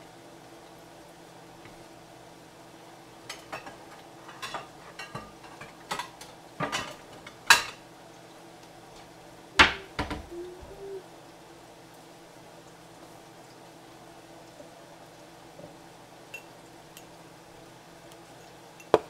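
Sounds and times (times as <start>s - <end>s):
faint steady hum: 0.0s - 19.0s
dishes and utensils clinking: 3.3s - 7.8s, 16.3s - 17.1s, 18.4s - 19.0s.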